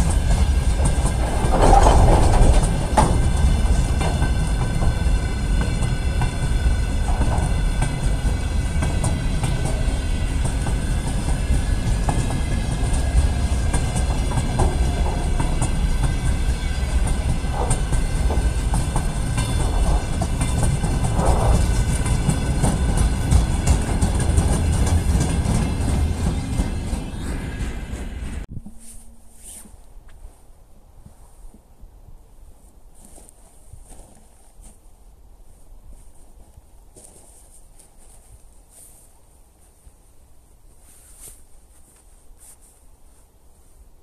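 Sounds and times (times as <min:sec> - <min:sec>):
wheels clicking over rail joints: 0:00.0 - 0:28.5
freight train rumbling past: 0:00.0 - 0:28.9
high ringing from wheels and rails: 0:00.0 - 0:29.7.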